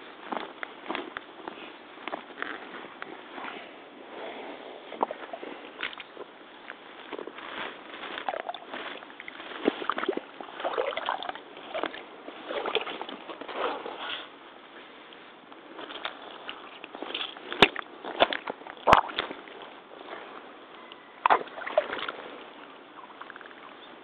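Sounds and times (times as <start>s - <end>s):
wet footsteps in mud: 4.9s - 13.4s.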